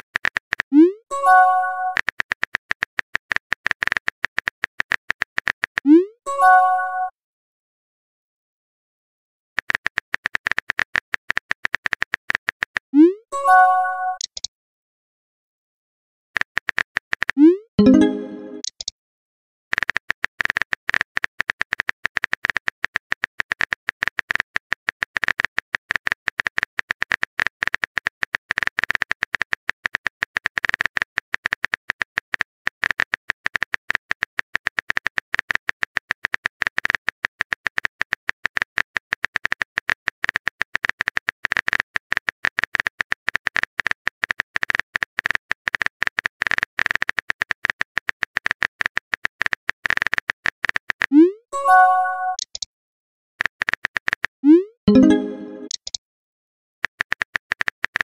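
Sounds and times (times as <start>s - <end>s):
phone keyboard typing clicks: 16.4s - 18.9s, 51.8s - 52.7s, 54.9s - 56.0s.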